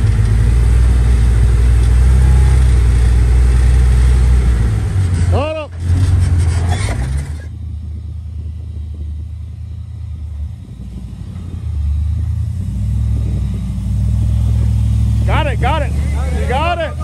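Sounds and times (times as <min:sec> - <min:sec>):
engine rumbling at low speed: 0:00.0 - 0:17.0.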